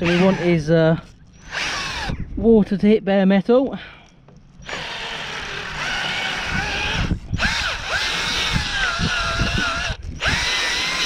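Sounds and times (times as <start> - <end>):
drill wire brush scratching metal: 0.0 - 0.8, 4.6 - 11.0.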